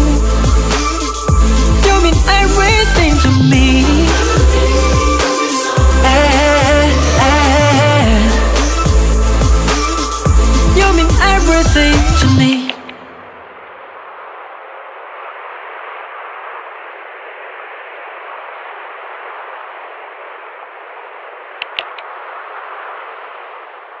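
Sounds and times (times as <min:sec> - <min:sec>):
static hiss: 0:00.0 - 0:24.0
sharp clicks: 0:21.6 - 0:22.1.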